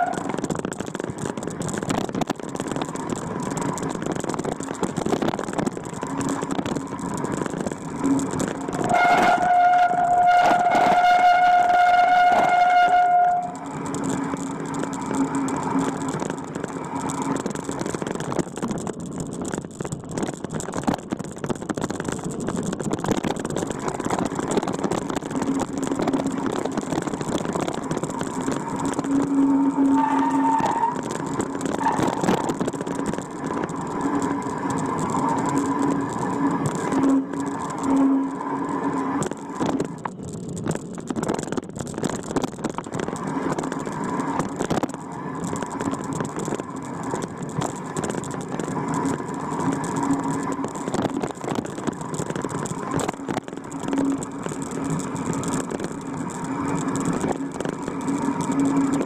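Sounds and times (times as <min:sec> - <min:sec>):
vehicle engine running: 0:00.0 - 0:59.0
steady high tone: 0:28.7 - 0:32.6.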